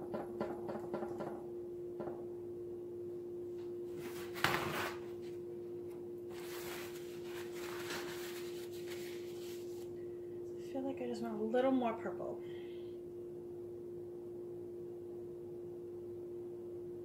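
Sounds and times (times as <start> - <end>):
steady low hum: 0.0 - 17.0
rustling: 6.3 - 9.9.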